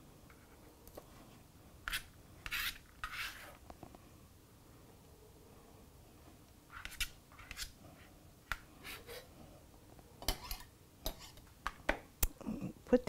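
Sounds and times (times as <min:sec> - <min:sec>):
knife tapping and scraping bowl: 0:10.2 - 0:12.0.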